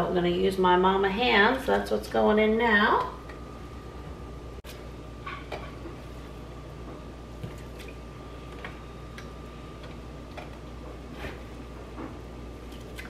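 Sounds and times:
faint hum: 0.0s - 13.0s.

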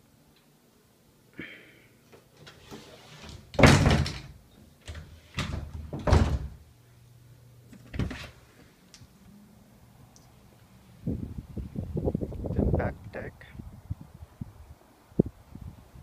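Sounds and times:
door bumps: 3.2s - 6.6s
door thump and rumble: 3.4s - 6.6s.

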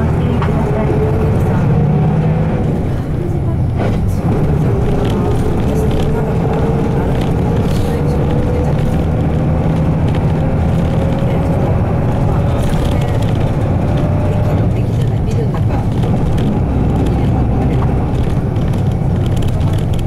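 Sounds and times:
bus diesel engine drone: 0.0s - 20.0s.

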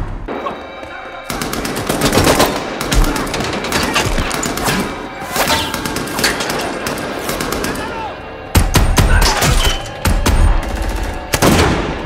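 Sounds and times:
rapid automatic gunfire: 1.3s - 5.0s.

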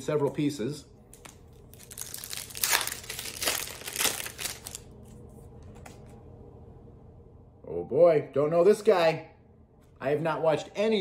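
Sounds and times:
paper cards crinkling and rustling: 1.1s - 6.2s.

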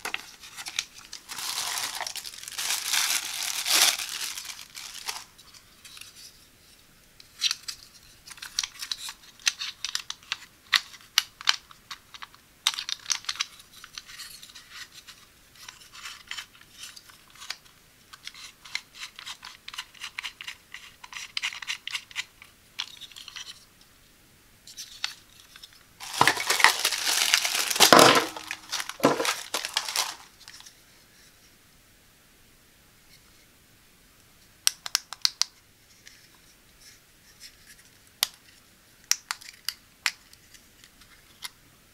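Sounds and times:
plastic bags crinkling: 0.0s - 5.4s, 26.0s - 30.6s.

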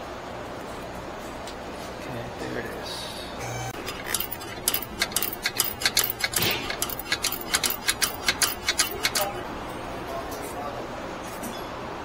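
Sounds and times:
socket ratchet clicking: 3.8s - 9.4s.

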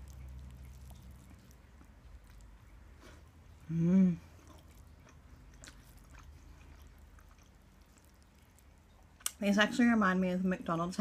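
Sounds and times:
chewing: 0.0s - 9.4s
woman humming mmm: 3.7s - 4.3s.

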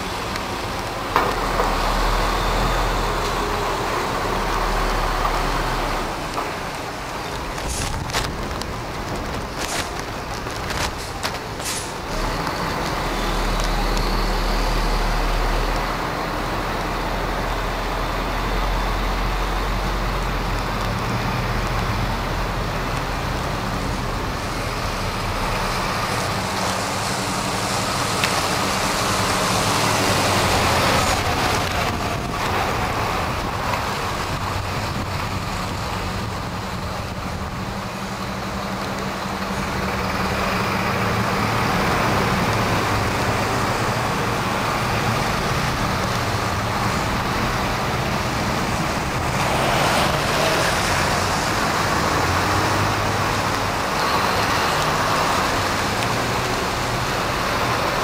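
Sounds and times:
tyre hiss on wet road: 0.0s - 8.3s, 9.6s - 15.5s, 21.9s - 34.6s
diesel lorry engines: 0.0s - 58.0s.

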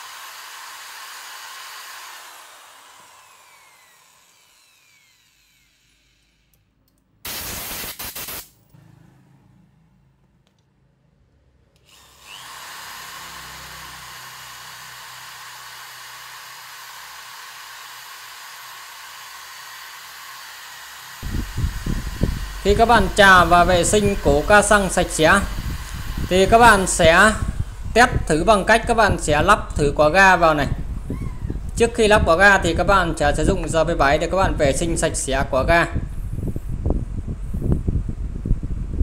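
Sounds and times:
electric drill spinning: 0.0s - 6.7s, 11.8s - 35.3s.

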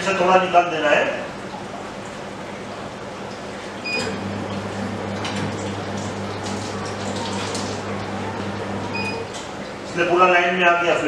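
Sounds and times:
motor humming low: 1.3s - 10.2s
machine beep: 3.8s - 4.2s, 8.9s - 9.2s.

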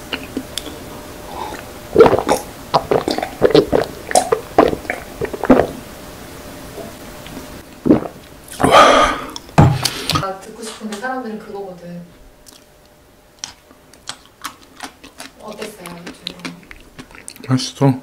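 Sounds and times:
mouth sound: 0.0s - 5.8s, 7.8s - 10.2s
person gulping drink: 0.0s - 5.8s, 7.7s - 10.2s.

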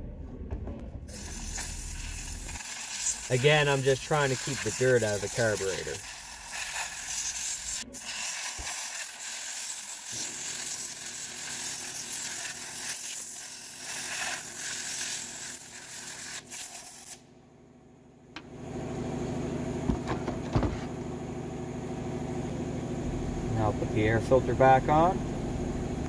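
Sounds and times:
air blow gun hissing: 1.1s - 17.2s.

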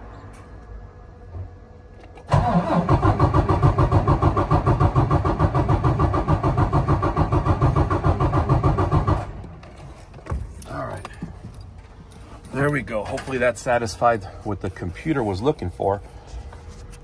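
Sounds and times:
diesel engine cranking on starter: 2.0s - 9.6s.

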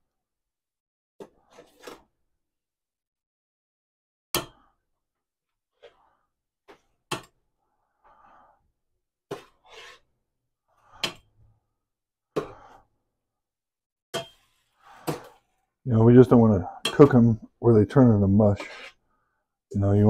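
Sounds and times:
utensil scraping pan: 9.3s - 10.1s, 12.4s - 12.9s, 14.2s - 15.7s, 18.5s - 19.1s.

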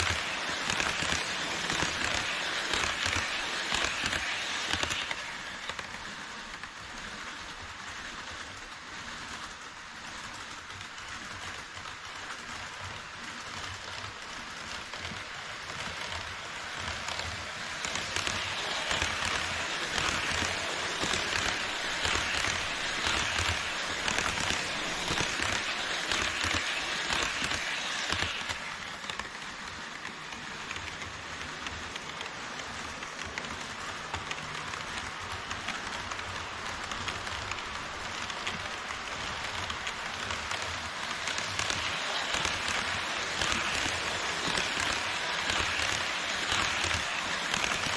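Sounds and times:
model train wheels rattling on rails: 0.0s - 47.9s.

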